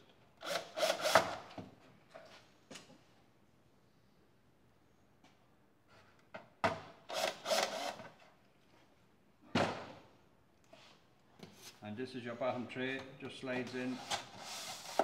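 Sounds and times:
cordless drill driving screws: 0.4s - 1.4s, 7.1s - 8.0s.

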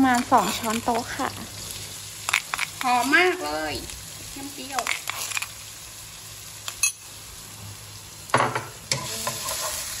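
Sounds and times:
garlic sizzling in oil: 0.0s - 10.0s
spatula knocking and scraping pan: 8.4s - 9.8s.

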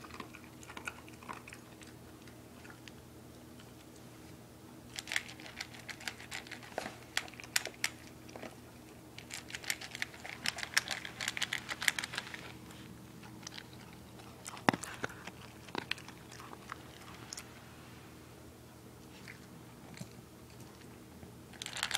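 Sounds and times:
dog crunching kibble in metal bowl: 0.0s - 3.0s, 4.9s - 12.6s, 13.2s - 17.4s, 21.5s - 21.9s.

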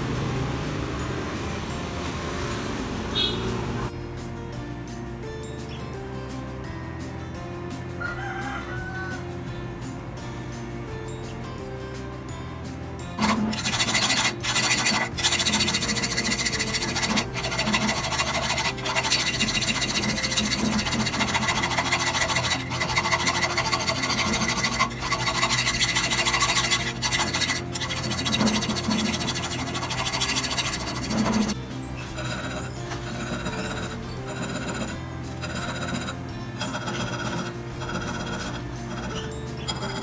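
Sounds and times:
abrasive scraping on blade: 13.2s - 40.0s.

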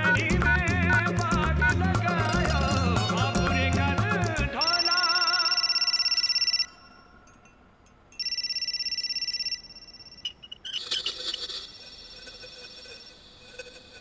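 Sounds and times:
phone ringtone pulsing: 0.0s - 3.6s, 4.6s - 7.2s, 8.2s - 11.0s.

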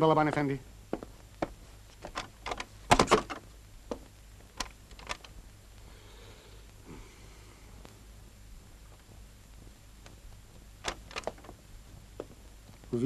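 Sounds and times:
footsteps on hard floor: 0.9s - 2.3s, 8.5s - 12.9s.

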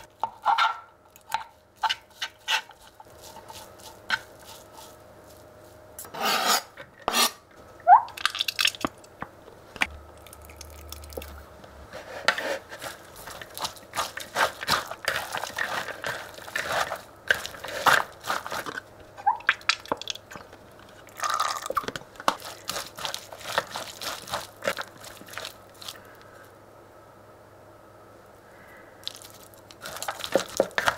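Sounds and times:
forks scraping on cutting board: 0.3s - 5.0s, 6.0s - 7.4s.

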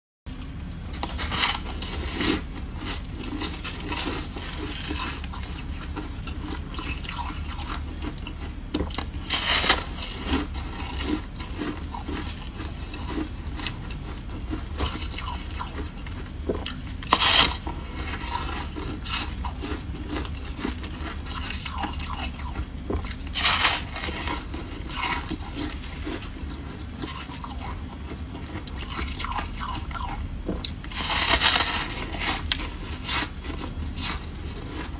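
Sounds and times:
crackling and chewing: 0.3s - 34.9s
steady low hum: 0.3s - 34.9s
loud crunches of biting frost: 30.9s - 34.3s.

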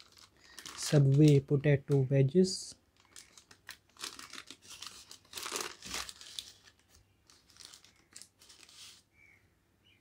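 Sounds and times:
paper and plastic bags rustling: 0.0s - 2.0s, 2.9s - 9.1s.

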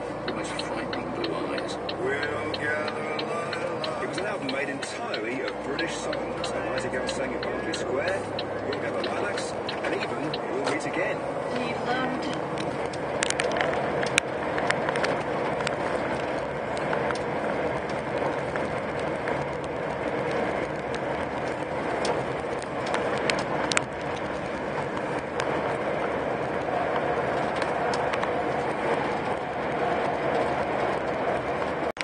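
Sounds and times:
lorry engine and tyre drone: 0.0s - 32.0s
short clicks and ticks: 0.2s - 11.0s.

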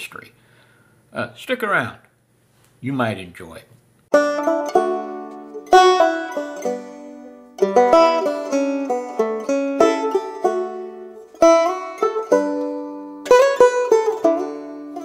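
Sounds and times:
plucked string music: 4.1s - 15.0s.

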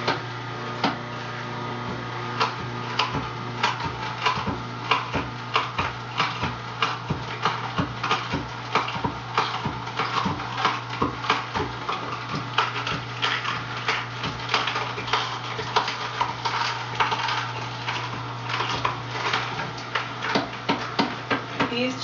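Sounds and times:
juicer motor hum: 0.0s - 22.0s
vegetables cracking and crunching: 2.3s - 21.5s.

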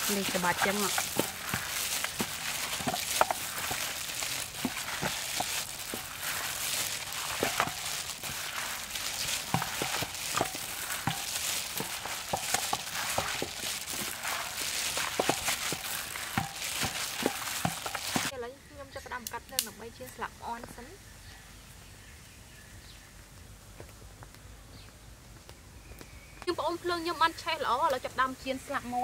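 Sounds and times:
plastic gloves crinkling: 0.0s - 18.3s
wet squelching: 0.0s - 18.3s.

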